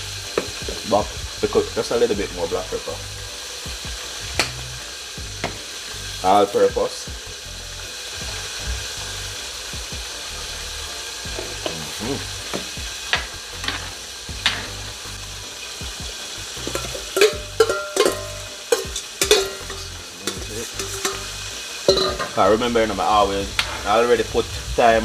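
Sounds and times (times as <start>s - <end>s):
food sizzling in oil: 0.0s - 25.0s
utensil scraping metal pot: 16.5s - 22.6s.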